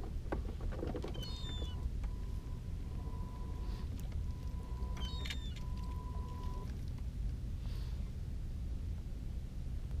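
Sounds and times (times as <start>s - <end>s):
low steady boat rumble: 0.0s - 10.0s
faint steady high tone: 1.2s - 6.8s.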